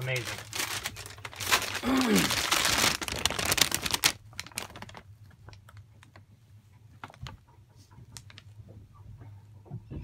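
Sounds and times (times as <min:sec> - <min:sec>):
paper bag crinkling: 0:00.0 - 0:06.2.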